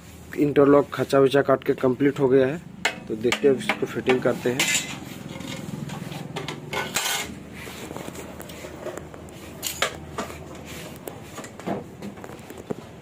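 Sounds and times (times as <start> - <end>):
aluminium profiles knocking: 2.8 - 4.9.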